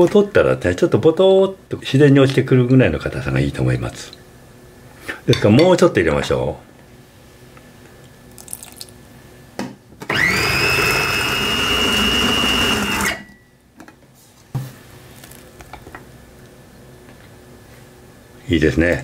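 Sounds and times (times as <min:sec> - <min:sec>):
food processor motor whining: 0:10.1 - 0:13.2.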